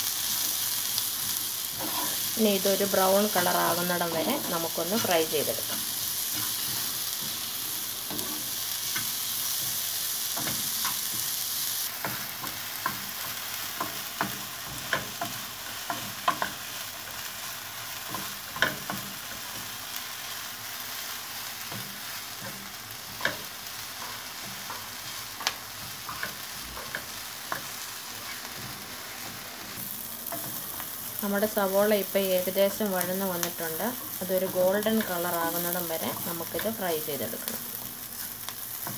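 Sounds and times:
onion sizzling in oil: 0.0s - 38.9s
spatula tapping and scraping pan: 12.0s - 16.7s, 18.0s - 19.7s, 21.6s - 28.8s.

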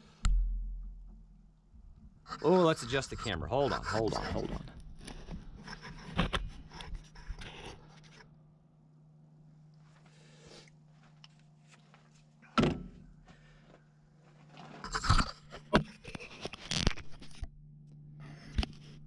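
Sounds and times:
sharp thunk: 12.6s - 12.9s.

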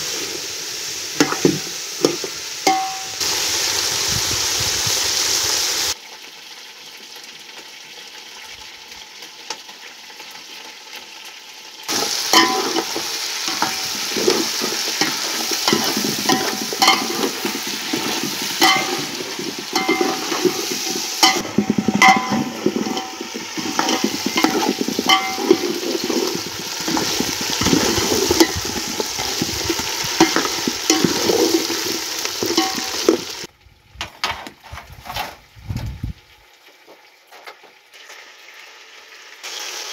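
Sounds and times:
food sizzling in oil: 0.0s - 33.5s, 36.2s - 39.9s
metal spoon clinking on pot: 2.7s - 3.2s, 12.3s - 14.4s, 15.0s - 29.4s, 30.2s - 31.8s, 32.4s - 33.2s.

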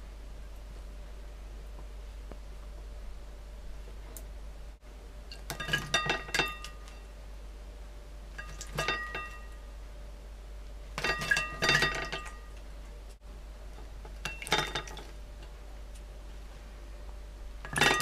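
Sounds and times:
ceramic dish clinking: 5.4s - 7.0s, 8.4s - 9.6s, 11.0s - 12.5s, 17.7s - 18.0s.

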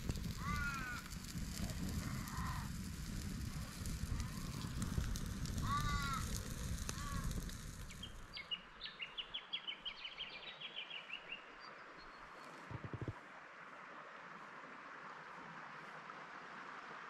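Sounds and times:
wood fire crackling: 0.0s - 8.5s.

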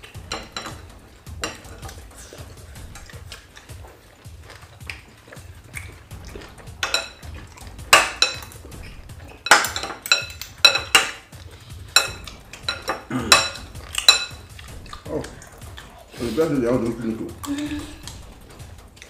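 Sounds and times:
cutlery clinking against bowls: 0.0s - 3.8s, 4.5s - 15.4s.

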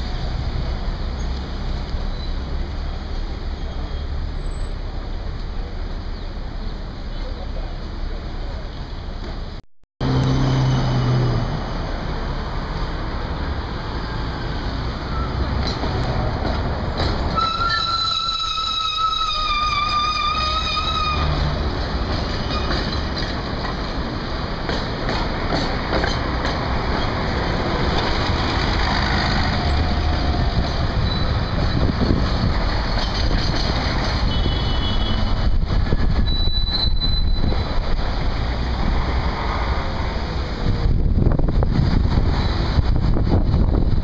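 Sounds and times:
buses and cars passing: 0.0s - 44.0s
tram wheels squealing: 2.0s - 5.1s, 13.9s - 24.0s, 24.6s - 38.2s.

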